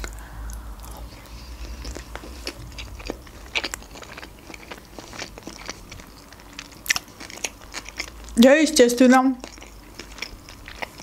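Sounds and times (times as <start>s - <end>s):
chewing with wet mouth clicks: 0.0s - 8.4s, 9.1s - 11.0s.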